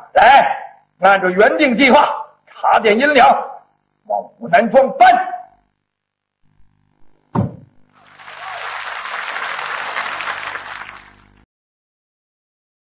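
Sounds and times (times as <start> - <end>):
sharp thump: 7.3 - 7.8
audience applause: 8.0 - 11.4.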